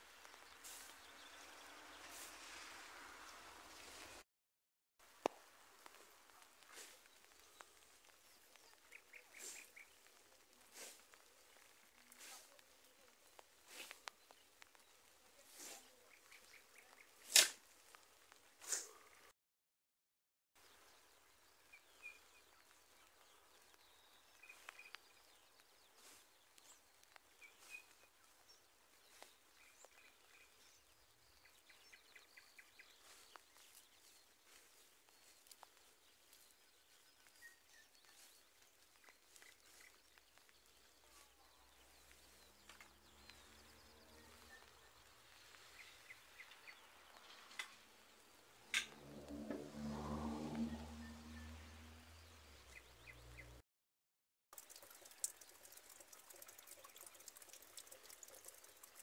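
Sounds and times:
songbird chirps: 0:00.0 - 0:04.2, 0:05.1 - 0:19.3, 0:20.6 - 0:53.6, 0:54.6 - 0:59.0
raindrops ticking: 0:54.5 - 0:59.0
light rain hiss: 0:54.6 - 0:59.0.

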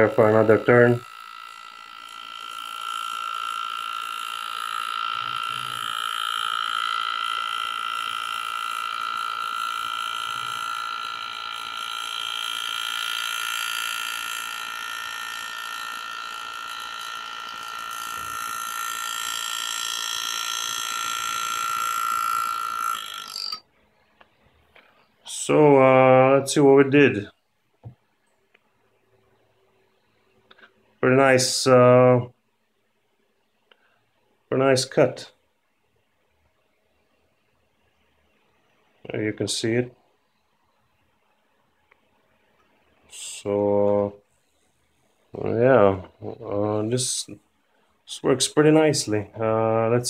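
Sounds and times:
engraving tool buzzing: 0:00.0 - 0:23.7.

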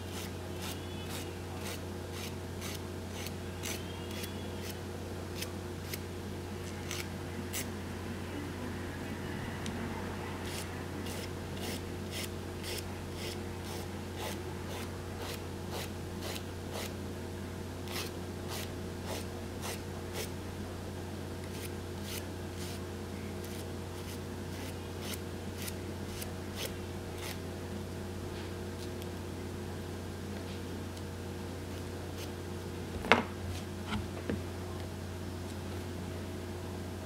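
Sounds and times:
steady low hum: 0:00.0 - 0:37.0
nail file rasping: 0:00.1 - 0:04.8.

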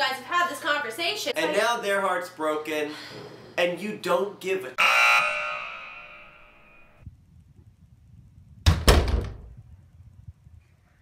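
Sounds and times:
door shutting with heavy thud: 0:08.6 - 0:09.5.

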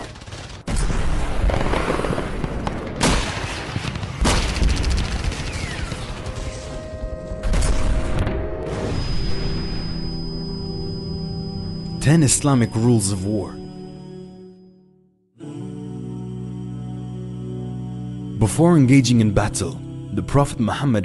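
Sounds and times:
machine-gun fire: 0:00.0 - 0:06.7
music tones: 0:06.5 - 0:15.1
rising tone: 0:06.7 - 0:16.2.

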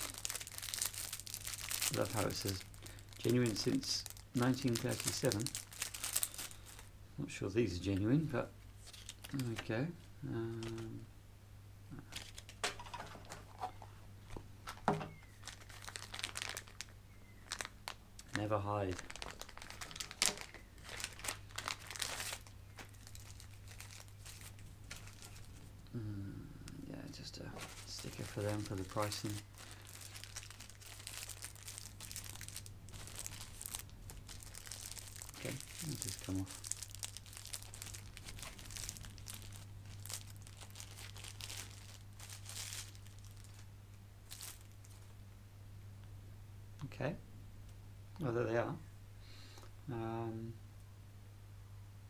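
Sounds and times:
plastic packaging crinkling: 0:00.0 - 0:06.9, 0:08.8 - 0:11.0, 0:12.1 - 0:25.7, 0:27.6 - 0:45.1
low steady hum: 0:00.0 - 0:52.0.

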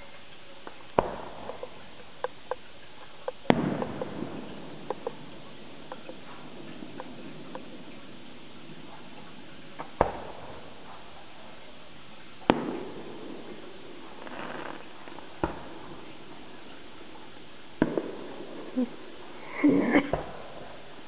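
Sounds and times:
steady background hiss: 0:00.0 - 0:21.0
fireworks bangs: 0:00.9 - 0:02.0, 0:03.3 - 0:11.5, 0:12.4 - 0:17.2, 0:17.8 - 0:19.4.

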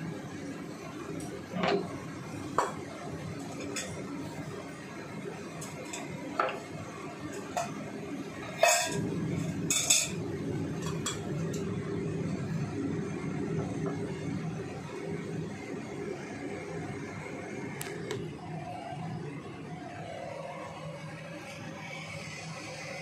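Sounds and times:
steady low hum: 0:00.0 - 0:23.0
utensils and cookware clinking: 0:02.6 - 0:04.2, 0:05.6 - 0:06.7, 0:08.4 - 0:10.2, 0:10.8 - 0:11.7.

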